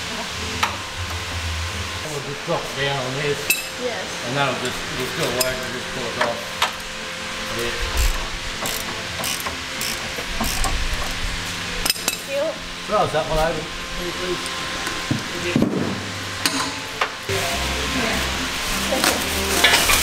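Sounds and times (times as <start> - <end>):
ratchet wrench clicking: 8.0 - 11.2.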